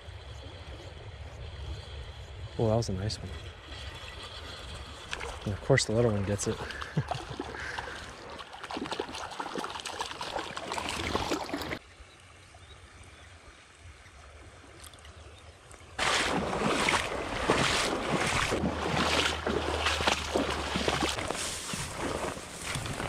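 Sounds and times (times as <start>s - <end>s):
creek water rushing and splashing: 3.6s - 11.9s, 14.2s - 23.0s
wind buffeting microphone: 16.0s - 23.0s.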